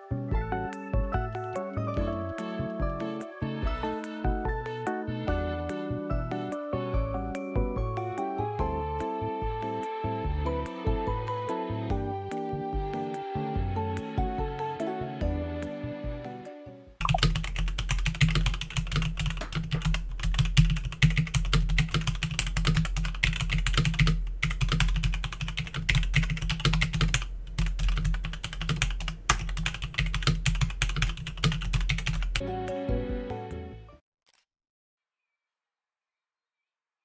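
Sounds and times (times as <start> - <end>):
mechanical keyboard typing: 17.0 - 32.4.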